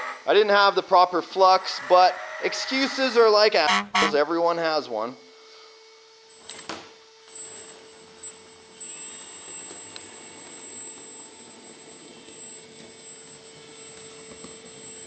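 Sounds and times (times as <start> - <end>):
faint high whine: 0.0 - 6.5, 7.1 - 15.0.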